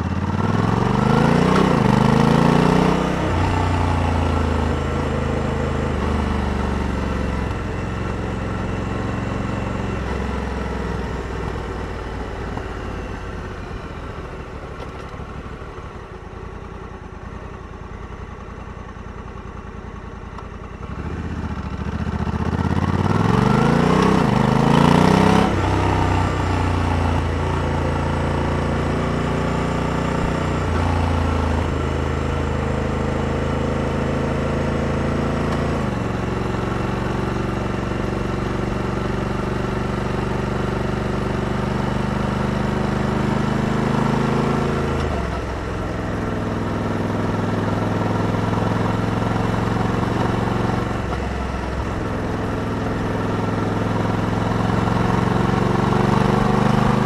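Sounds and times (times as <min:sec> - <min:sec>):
motorcycle engine running: 0:00.0 - 0:57.0
gear shifts with pitch drop: 0:20.8 - 0:57.0.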